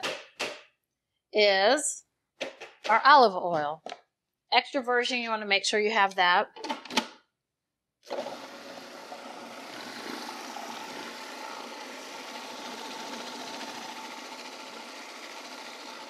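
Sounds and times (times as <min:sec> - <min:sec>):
food processor motor whining: 0:08.0 - 0:16.0.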